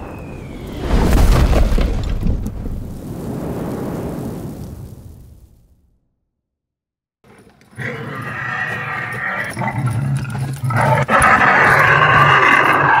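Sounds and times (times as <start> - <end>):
dinosaur growl: 7.3 - 13.0.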